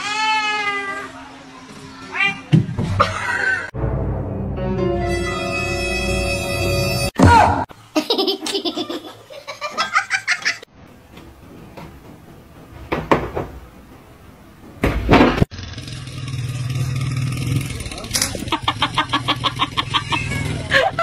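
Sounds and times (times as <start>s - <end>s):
person laughing: 18.3s - 21.0s.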